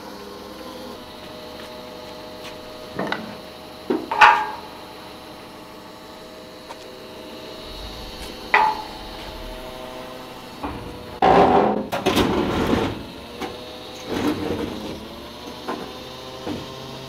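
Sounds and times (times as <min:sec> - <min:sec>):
faint steady hum: 0:02.6 - 0:11.9
knocks and clattering: 0:07.7 - 0:13.0.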